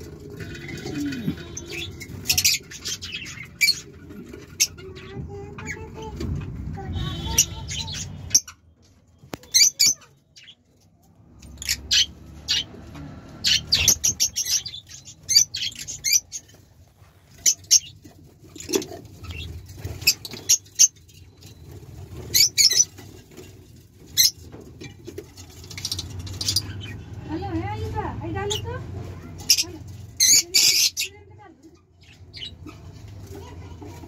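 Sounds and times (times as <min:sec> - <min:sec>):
birds chirping: 0:00.0 - 0:34.0.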